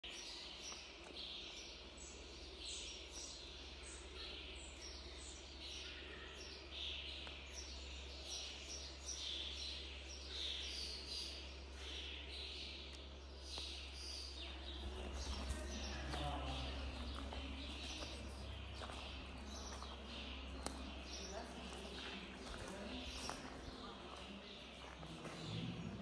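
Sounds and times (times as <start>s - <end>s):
birds chirping: 0.0s - 26.0s.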